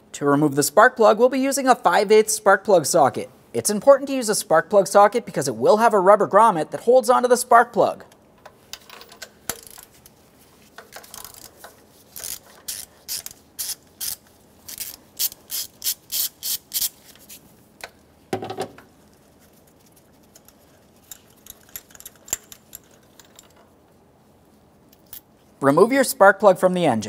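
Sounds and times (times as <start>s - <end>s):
hand ratchet clicking: 9.2s - 9.9s, 10.8s - 17.0s, 20.4s - 23.6s.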